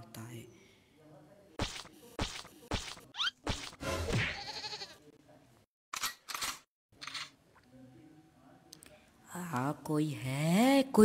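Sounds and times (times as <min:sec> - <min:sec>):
person making bleat-like sound: 0:04.3 - 0:05.0.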